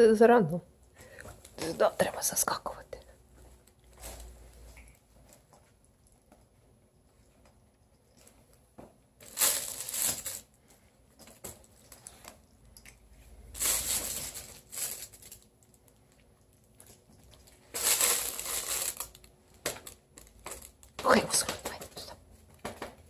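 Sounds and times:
fabric cat tunnel crinkling: 0:09.2 - 0:10.6, 0:13.4 - 0:16.0, 0:17.5 - 0:20.9.

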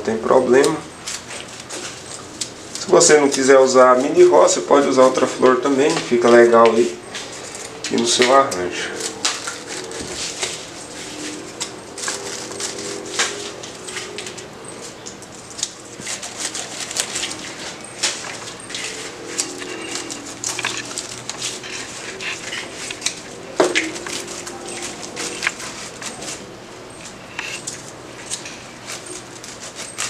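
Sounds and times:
rose stems rustling and snapping: 0:05.0 - 0:30.0.

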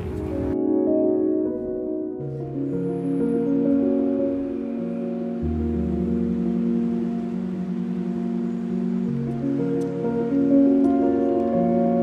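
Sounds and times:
soft music of held notes: 0:00.0 - 0:12.0.

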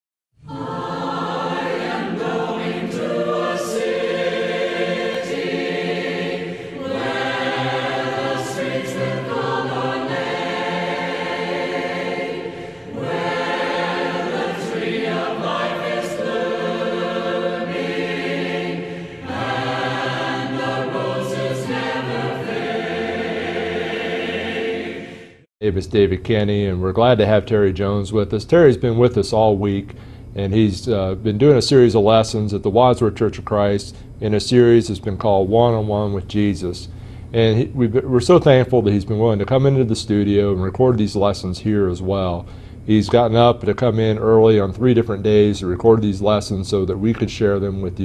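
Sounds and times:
choir singing a hymn: 0:00.4 - 0:25.5.

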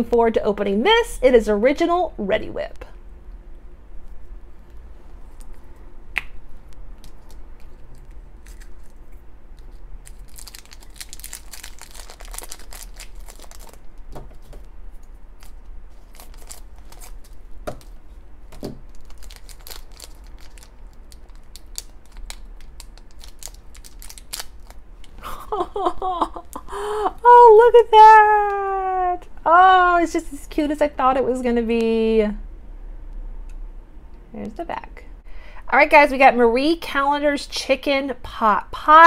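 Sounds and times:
foil wrapper crinkling and tearing: 0:07.0 - 0:09.0, 0:09.6 - 0:14.1, 0:15.4 - 0:18.0, 0:18.9 - 0:25.1.

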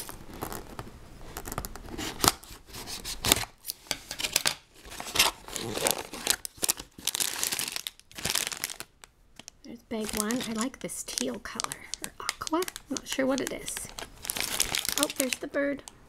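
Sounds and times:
plastic bags crinkling: 0:04.2 - 0:16.0
cardboard flap tearing: 0:04.9 - 0:08.8.

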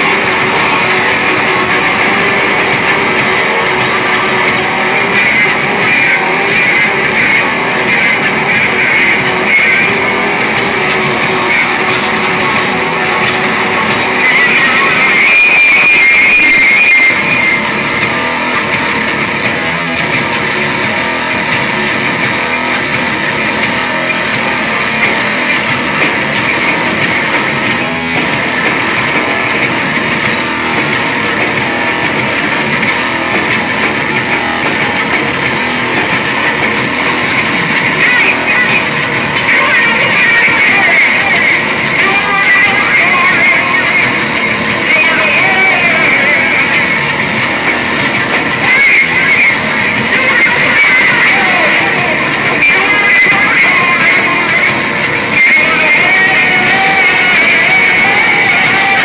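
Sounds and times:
shrill high-pitched squeal: 0:00.0 - 0:19.1
distorted bass guitar: 0:00.0 - 0:59.0
pounding drums: 0:00.0 - 0:59.0.

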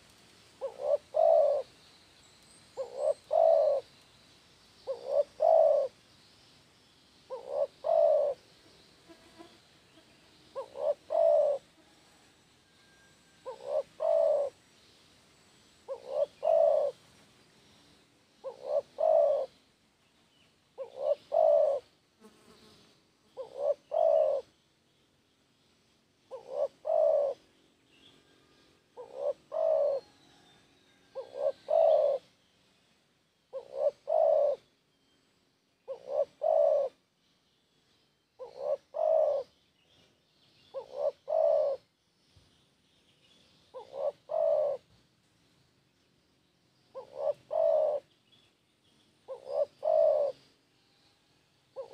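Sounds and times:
dove cooing: 0:00.6 - 0:01.7, 0:02.8 - 0:03.9, 0:04.8 - 0:06.0, 0:07.3 - 0:08.5, 0:10.5 - 0:12.0, 0:13.4 - 0:14.6, 0:15.9 - 0:17.0, 0:18.4 - 0:19.6, 0:20.8 - 0:21.9, 0:23.4 - 0:24.5, 0:26.3 - 0:27.5, 0:28.9 - 0:30.4, 0:31.0 - 0:32.3, 0:33.5 - 0:34.7, 0:35.8 - 0:37.0, 0:38.4 - 0:39.6, 0:40.7 - 0:41.9, 0:43.7 - 0:45.0, 0:46.9 - 0:48.1, 0:49.3 - 0:50.5.

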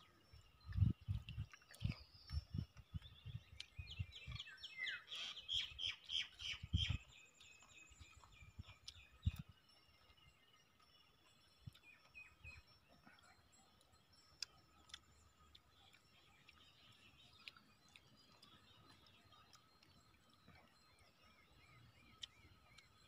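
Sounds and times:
chewing and biting: 0:00.7 - 0:04.0, 0:06.9 - 0:11.0, 0:11.6 - 0:21.1.

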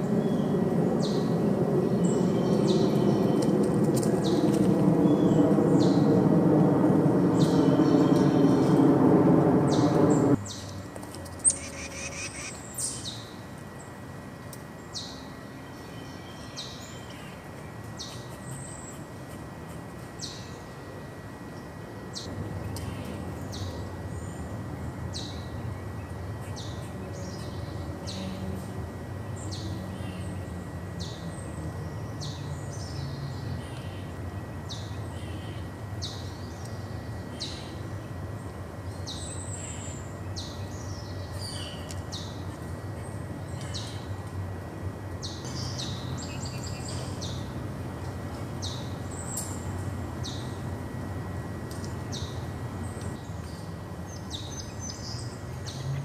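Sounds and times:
steady low rumble: 0:00.0 - 0:10.4.

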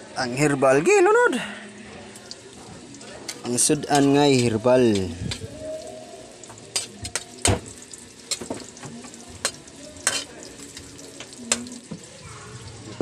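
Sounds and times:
vegetables sizzling in a wok: 0:00.0 - 0:13.0
metal spatula clacking on pan: 0:03.2 - 0:05.4, 0:06.5 - 0:11.8.

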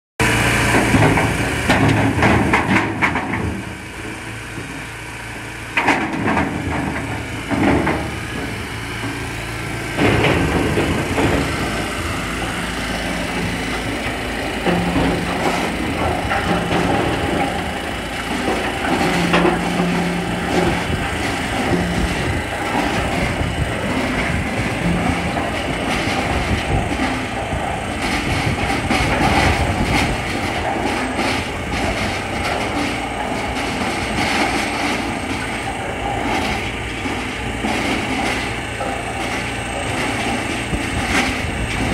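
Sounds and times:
low machine hum: 0:00.2 - 0:41.9
wood clattering in tumbler: 0:09.9 - 0:12.0.

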